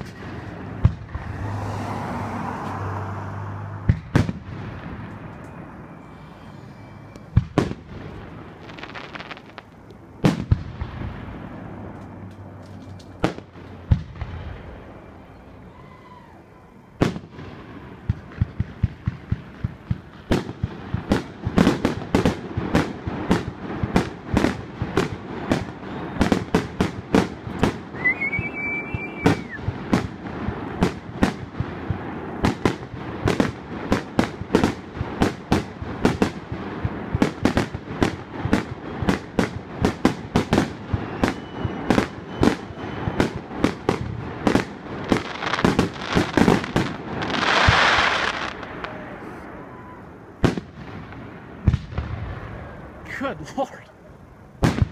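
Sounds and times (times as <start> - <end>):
fireworks bursting: 0.0 - 16.2, 16.8 - 53.6, 54.5 - 54.9
fireworks rumble: 0.0 - 54.9
firework whistle: 3.9 - 10.6, 25.0 - 30.2, 38.5 - 50.2.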